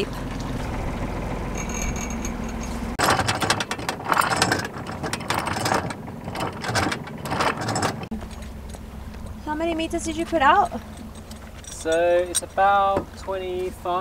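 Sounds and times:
boat engine running: 0:00.0 - 0:14.0
anchor chain rattling: 0:01.4 - 0:13.7.

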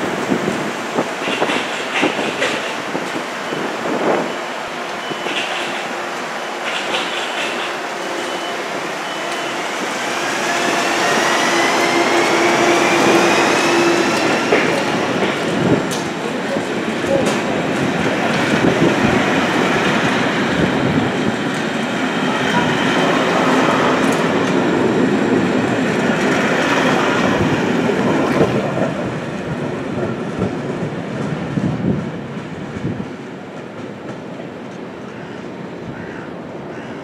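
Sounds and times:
train wheels clattering over rail joints: 0:01.0 - 0:03.2, 0:05.0 - 0:05.8, 0:06.6 - 0:07.8, 0:10.3 - 0:29.1.

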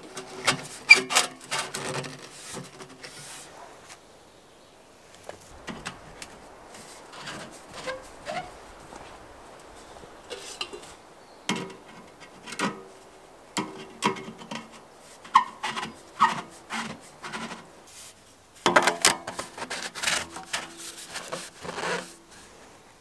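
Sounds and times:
metal stovepipe scraping: 0:00.0 - 0:03.4, 0:06.7 - 0:08.6, 0:10.3 - 0:12.9, 0:13.6 - 0:18.0, 0:18.7 - 0:22.6.

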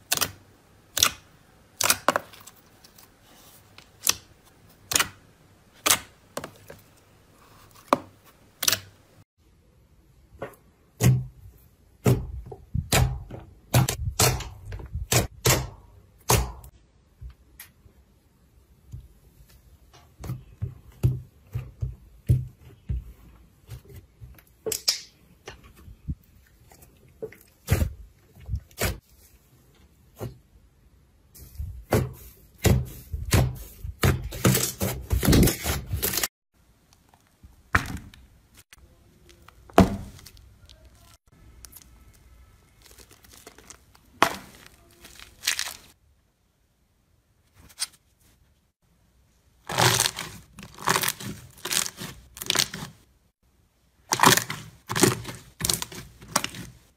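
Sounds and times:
crunchy slime crackling: 0:39.2 - 0:46.0, 0:49.6 - 0:53.1, 0:54.1 - 0:56.9.

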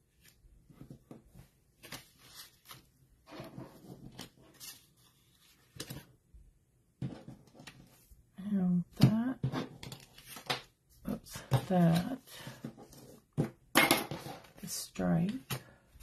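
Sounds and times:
paper rustling: 0:00.2 - 0:06.0.

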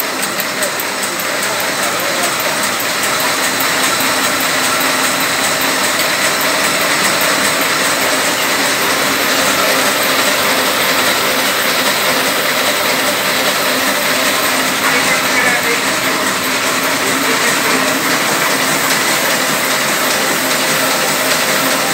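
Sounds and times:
printing press whirring: 0:00.0 - 0:21.9.

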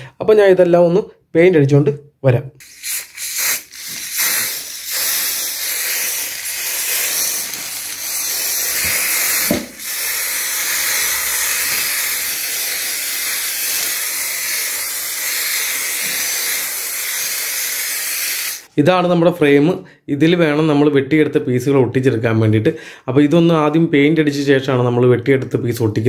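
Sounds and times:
spray paint can hissing: 0:02.6 - 0:18.7.

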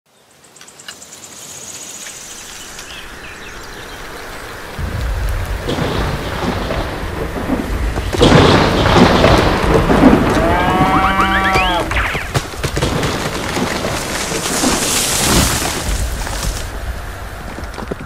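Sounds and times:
rain hiss: 0:00.1 - 0:18.0
thunder rumbling: 0:04.1 - 0:18.0
loud thunderclap: 0:04.8 - 0:16.5.

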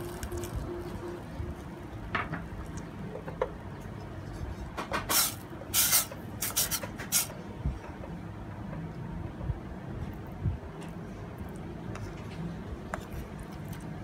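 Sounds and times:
low hum: 0:00.0 - 0:04.6.

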